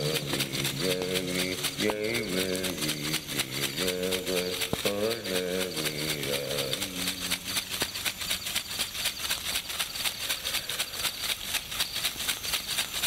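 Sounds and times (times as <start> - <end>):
low chanted vocal note: 0.0 - 7.7
shaker rattling rhythm: 0.0 - 13.0.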